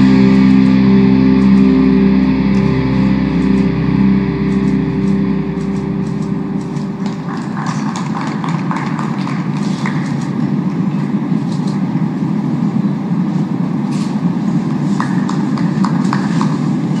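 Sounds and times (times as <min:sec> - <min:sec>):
low background rumble: 0:00.0 - 0:11.3
audience clapping: 0:04.5 - 0:10.6, 0:14.9 - 0:16.9.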